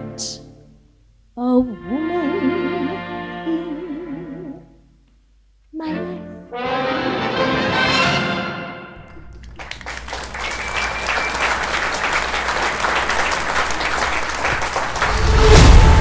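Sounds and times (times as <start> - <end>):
orchestral accompaniment: 1.6 - 4.6, 5.8 - 13.1
audience applauding: 9.0 - 16.0.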